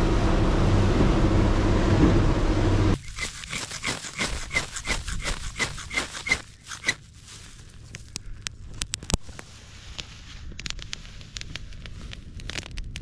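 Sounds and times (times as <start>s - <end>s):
motorboat engine hum: 0.0s - 7.8s
wind: 0.0s - 13.0s
fire steel scraping: 3.0s - 7.8s.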